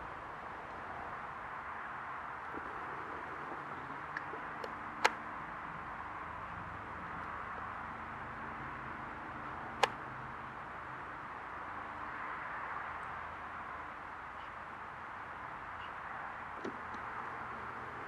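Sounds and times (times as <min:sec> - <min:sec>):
distant helicopter hovering: 0:02.4 - 0:07.2
sharp clicks: 0:04.1 - 0:05.2, 0:09.8 - 0:10.0.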